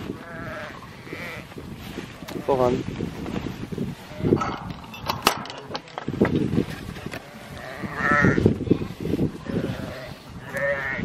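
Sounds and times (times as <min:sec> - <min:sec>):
sheep moving through long grass: 0:00.0 - 0:11.0
sheep bleating: 0:00.1 - 0:01.5, 0:07.2 - 0:08.4, 0:09.4 - 0:11.0.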